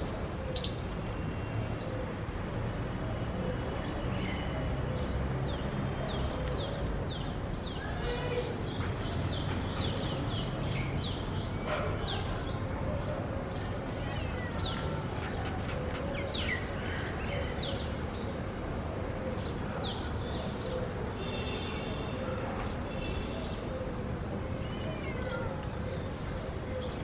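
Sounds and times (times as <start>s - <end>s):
birds chirping: 0.0s - 1.0s.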